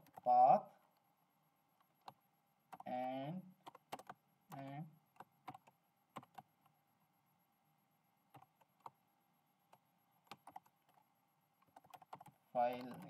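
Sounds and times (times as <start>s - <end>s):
keyboard keystrokes: 3.7s - 6.5s, 10.2s - 11.0s, 11.6s - 13.0s.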